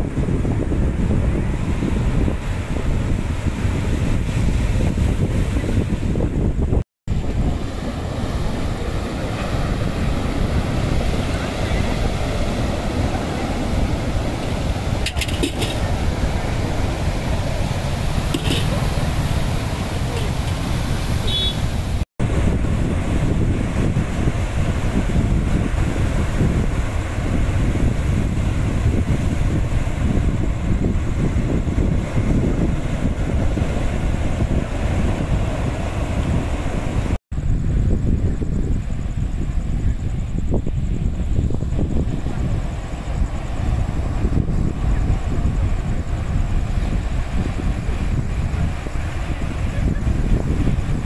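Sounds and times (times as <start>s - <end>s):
wind buffeting microphone: 0.0s - 51.0s
waves breaking on rocks: 7.1s - 22.0s
surf breaking on rocks: 7.1s - 37.2s.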